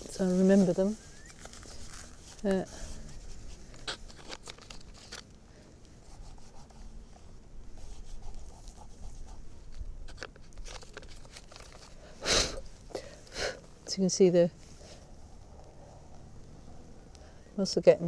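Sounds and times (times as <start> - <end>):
short rustle: 0.0 - 5.4
pastel scratching on paper: 6.0 - 6.9, 7.8 - 9.5.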